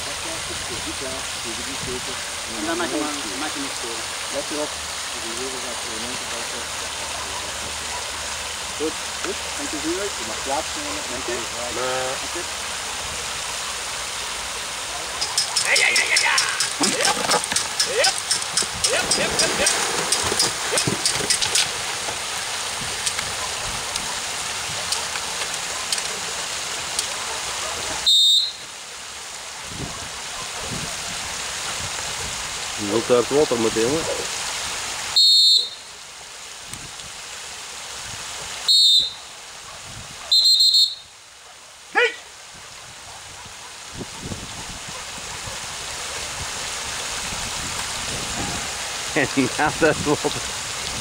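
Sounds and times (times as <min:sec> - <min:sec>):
water pouring down wooden stairs: 0:00.0 - 0:35.6, 0:43.9 - 0:51.0
dog bark: 0:07.0 - 0:08.2, 0:27.0 - 0:28.1, 0:29.8 - 0:30.9, 0:39.6 - 0:40.5, 0:43.0 - 0:44.3, 0:44.9 - 0:46.2
whistle trilling blast: 0:28.0 - 0:28.6, 0:35.2 - 0:35.9, 0:38.7 - 0:39.2, 0:40.3 - 0:41.1.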